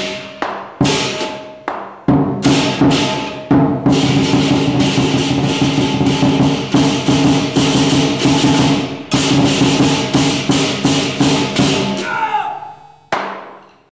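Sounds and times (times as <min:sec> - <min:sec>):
barrel drum beating: 0:00.0 - 0:12.0
handheld cymbals clashing: 0:00.0 - 0:12.1
gong: 0:02.4 - 0:12.0.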